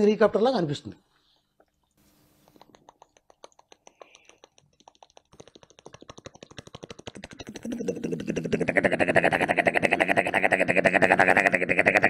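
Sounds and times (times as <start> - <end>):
man imitating a helicopter: 7.4 - 12.0.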